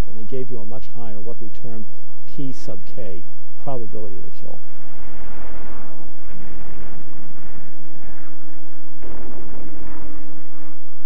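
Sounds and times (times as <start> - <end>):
steady low hum: 0.0 - 11.0
gunfire and explosions: 4.6 - 10.8.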